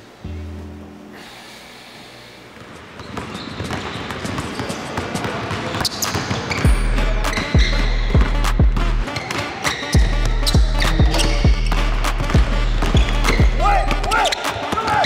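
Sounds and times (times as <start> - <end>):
basketballs bouncing on wooden floor: 2.6 - 9.3, 10.0 - 15.0
background music with heavy bass: 6.7 - 9.1, 10.0 - 14.2.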